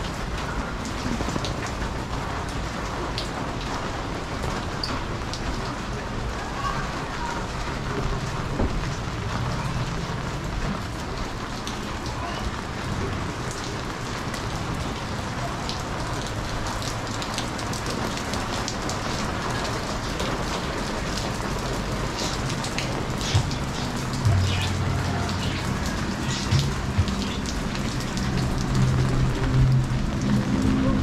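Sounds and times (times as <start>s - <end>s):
close raindrops striking: 0.0s - 31.0s
steady rain falling: 0.0s - 31.0s.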